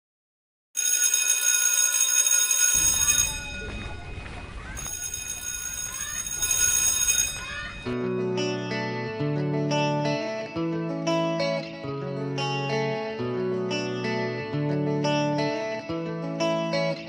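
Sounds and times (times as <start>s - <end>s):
electric school bell ringing: 0.8s - 8.0s
children running: 2.8s - 7.9s
children shouting: 3.2s - 8.0s.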